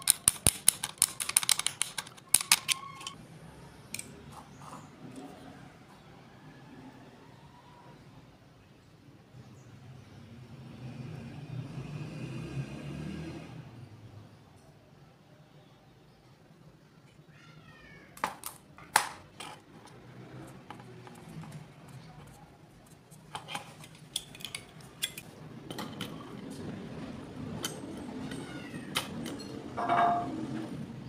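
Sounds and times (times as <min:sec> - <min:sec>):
plastic and metal clicks and taps: 0:00.0 - 0:03.2.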